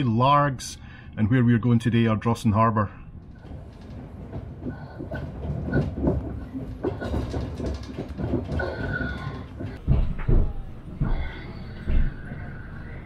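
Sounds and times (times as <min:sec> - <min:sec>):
train rumbling: 0:03.1 - 0:13.0
wheels clattering over rail joints: 0:03.2 - 0:10.4.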